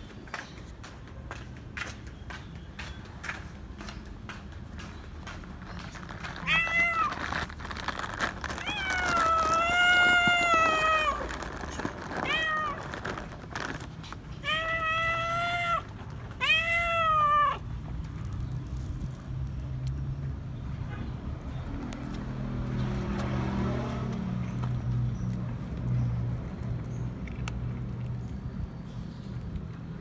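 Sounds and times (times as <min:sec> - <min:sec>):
cat meowing: 0:06.4 - 0:07.4, 0:08.6 - 0:11.3, 0:12.2 - 0:12.9, 0:14.4 - 0:17.6.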